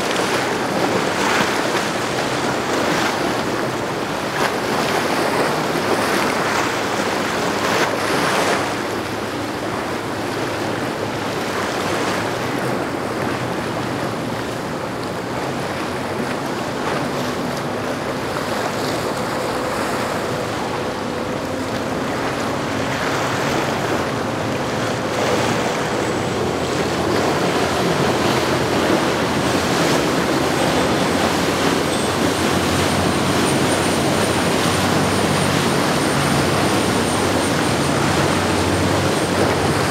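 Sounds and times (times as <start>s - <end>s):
boat engines droning: 0.0s - 39.9s
waves and boat wake washing: 0.0s - 39.9s
wind buffeting microphone: 0.0s - 39.9s.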